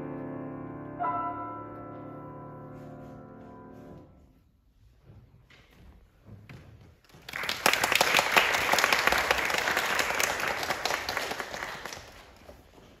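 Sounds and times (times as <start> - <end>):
audience applauding: 7.0 - 12.7.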